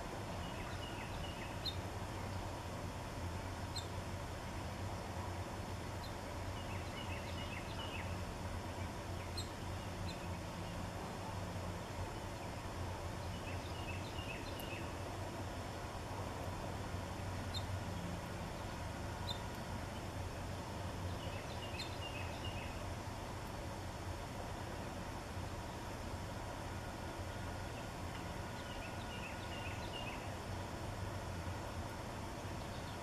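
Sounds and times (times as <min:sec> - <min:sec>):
low background hum: 0:00.0 - 0:33.0
songbird singing falling notes: 0:13.3 - 0:14.9.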